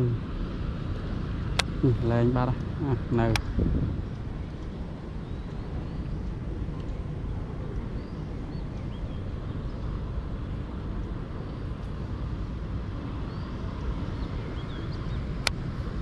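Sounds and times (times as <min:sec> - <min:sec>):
wind buffeting microphone: 0:00.0 - 0:16.0
faint bird chirps: 0:05.2 - 0:10.0.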